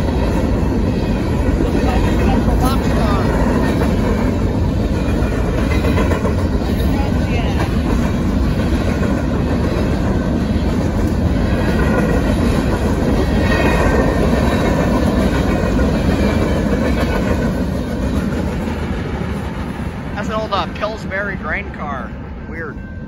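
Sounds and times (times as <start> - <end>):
wheels clattering over rails: 0.0 - 21.2
freight train rumbling past: 0.0 - 23.0.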